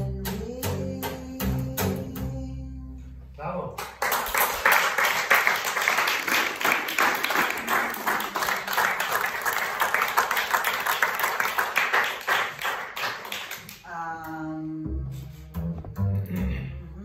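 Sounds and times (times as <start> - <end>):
audience applauding: 3.9 - 13.8.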